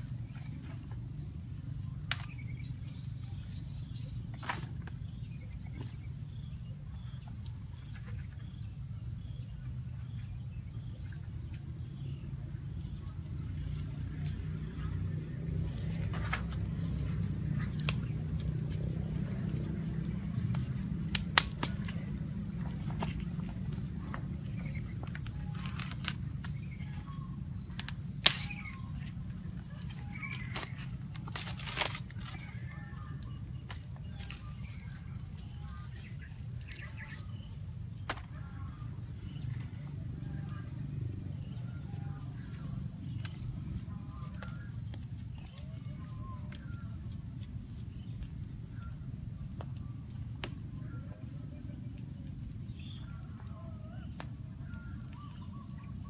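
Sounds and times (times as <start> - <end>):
low rumble: 0.0 - 56.0
steady low hum: 0.0 - 56.0
banana leaf tearing: 15.8 - 18.8, 19.9 - 22.4, 27.7 - 29.1, 29.8 - 34.8.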